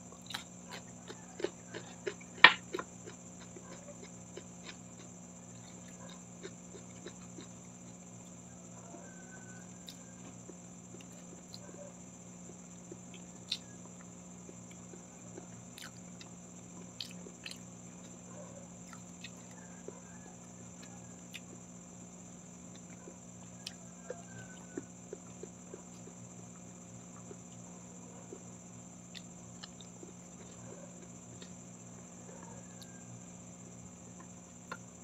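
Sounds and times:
faint background hum: 0.0s - 35.0s
person chewing food: 0.1s - 8.4s, 9.8s - 11.7s, 12.4s - 20.0s, 20.8s - 21.7s, 22.7s - 27.6s, 28.2s - 31.7s, 34.2s - 34.9s.

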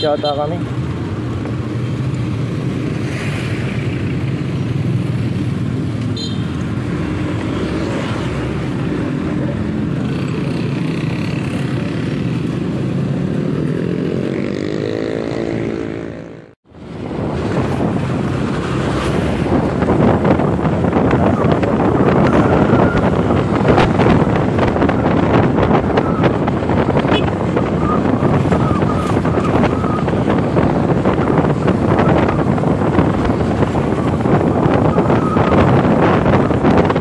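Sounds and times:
wind rushing over microphone: 0.6s - 37.0s.

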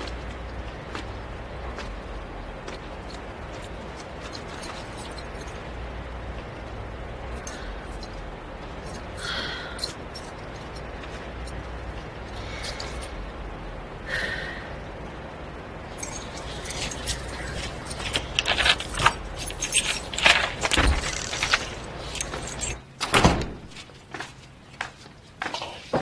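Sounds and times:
keys jangling: 3.9s - 5.6s, 9.8s - 11.6s, 15.9s - 22.8s.

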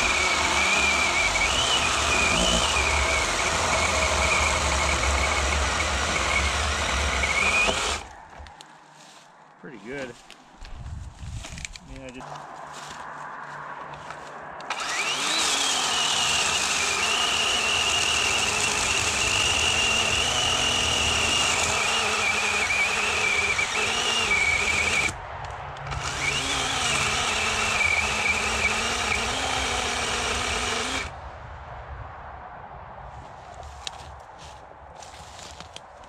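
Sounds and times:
electric chainsaw cutting wood: 0.0s - 8.2s, 14.6s - 25.2s, 25.9s - 31.1s.

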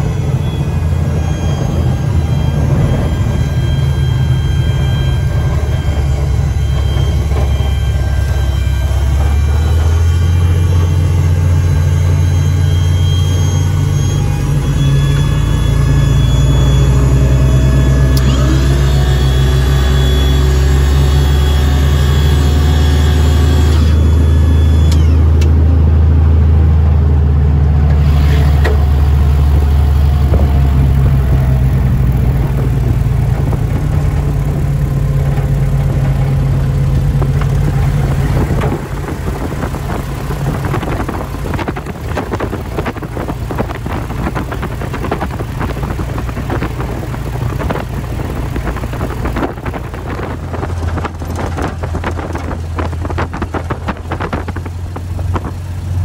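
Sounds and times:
propeller plane engine running: 0.0s - 56.0s.

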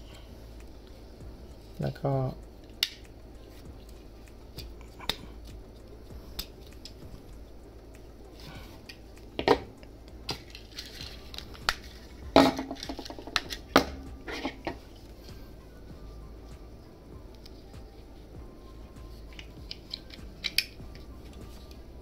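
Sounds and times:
plastic model parts clicking: 19.3s - 20.8s.

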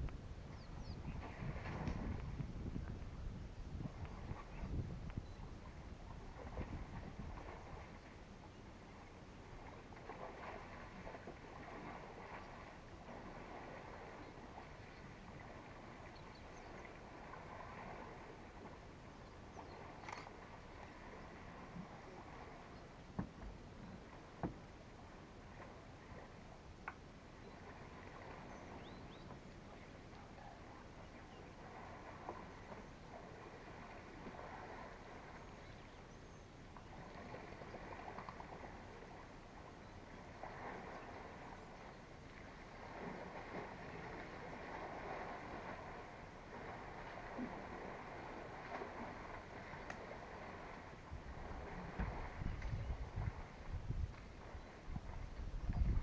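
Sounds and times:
low background hiss and rumble: 0.0s - 56.0s
faint bird chirps: 0.5s - 1.5s, 4.4s - 5.6s, 28.3s - 31.6s
faint ticks and rustles: 1.2s - 3.2s, 3.8s - 5.6s, 18.6s - 20.5s, 38.0s - 38.5s, 48.7s - 50.2s, 51.9s - 56.0s.

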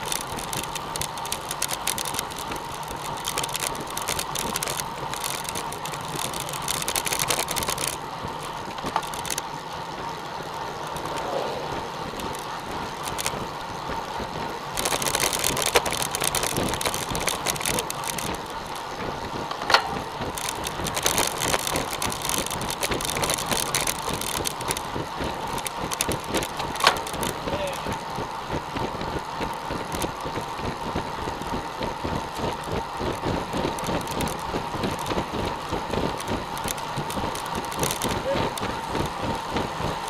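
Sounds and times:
bicycle tyres on asphalt: 0.0s - 40.0s
wind rushing over microphone: 10.9s - 13.6s.

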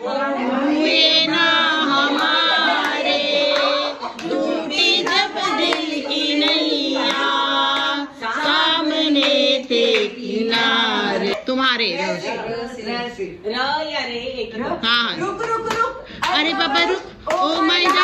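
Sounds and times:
women singing together: 0.0s - 13.2s, 15.1s - 18.0s
hand clapping: 2.1s - 8.0s, 15.4s - 16.4s, 17.3s - 18.0s.

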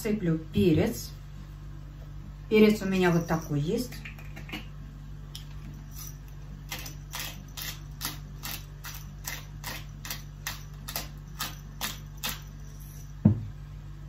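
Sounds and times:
pepper mill grinding clicks: 6.7s - 12.5s.

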